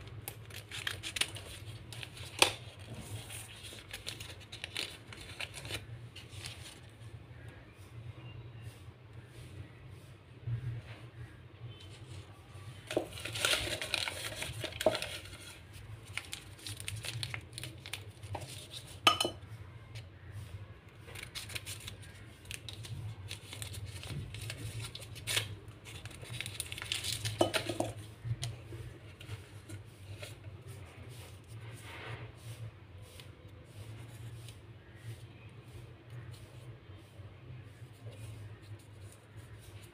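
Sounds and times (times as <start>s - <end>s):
paper packets rustling: 0.0s - 7.1s, 11.8s - 19.1s, 20.9s - 31.7s
hard items clinking on glass: 19.0s - 19.4s.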